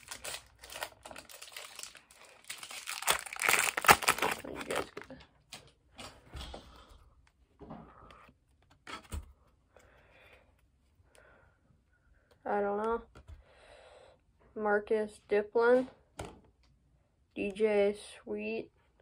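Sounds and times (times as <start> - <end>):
foil wrapper crinkling and tearing: 0.0 - 5.2.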